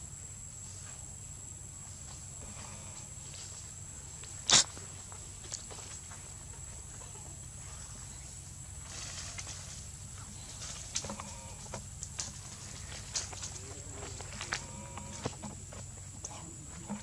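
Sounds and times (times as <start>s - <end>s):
faint outdoor hiss: 0.0s - 17.0s
rustling: 0.6s - 17.0s
footsteps on dry leaves: 12.1s - 16.1s.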